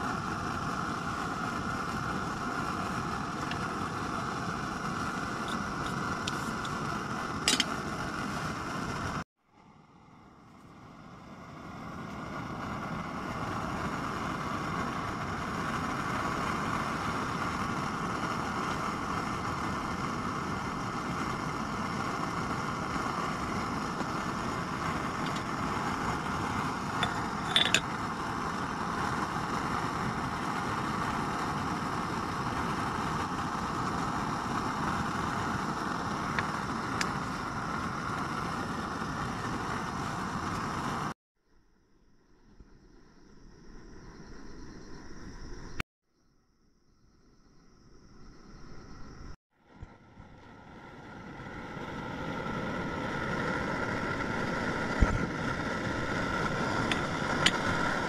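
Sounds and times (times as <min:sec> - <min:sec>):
camp stove burner rushing: 0:00.0 - 0:41.2, 0:49.6 - 0:58.0.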